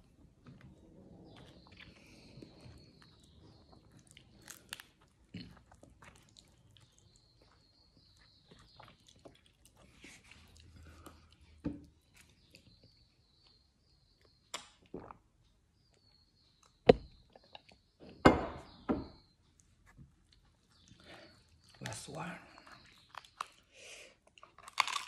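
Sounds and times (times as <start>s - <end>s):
chewing: 0.2s - 13.0s, 19.6s - 21.9s, 22.5s - 25.0s.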